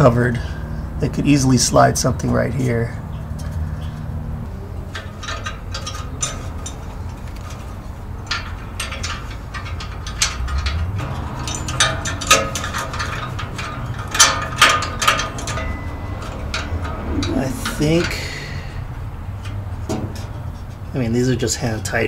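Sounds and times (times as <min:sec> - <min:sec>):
metal clamp clicking and clinking: 0:04.8 - 0:18.8.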